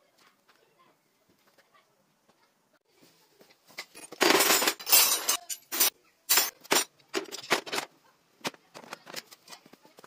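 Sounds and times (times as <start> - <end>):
metal wrenches clattering into plastic case: 3.8 - 7.9.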